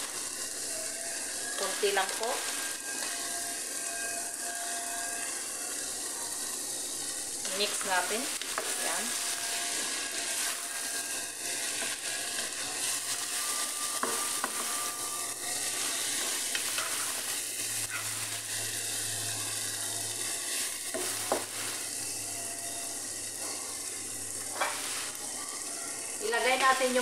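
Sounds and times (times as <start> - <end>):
food sizzling in a frying pan: 0.0 - 27.0
wooden spoon stirring: 7.4 - 22.4.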